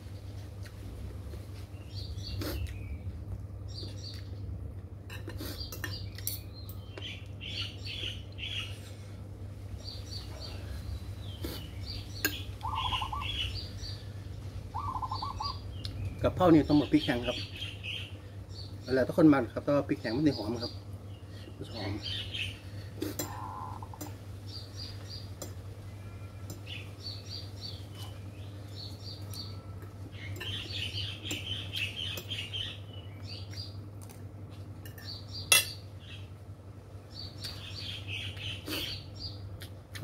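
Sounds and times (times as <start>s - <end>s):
bird singing: 5.6s - 8.8s, 9.8s - 33.8s, 34.9s - 36.4s, 37.1s - 39.5s.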